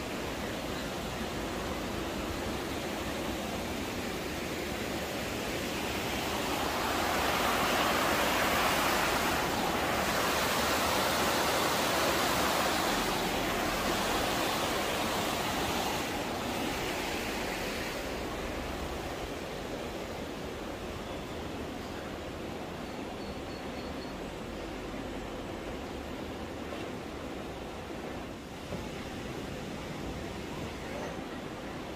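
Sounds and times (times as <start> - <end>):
water rushing over rocks: 0.0 - 20.8.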